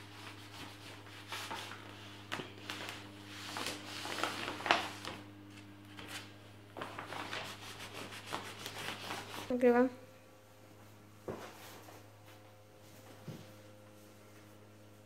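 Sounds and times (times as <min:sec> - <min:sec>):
cloth rubbing on vinyl sticker: 0:00.0 - 0:05.2, 0:06.0 - 0:09.6
plastic sheet rustling and crackling: 0:00.0 - 0:09.5.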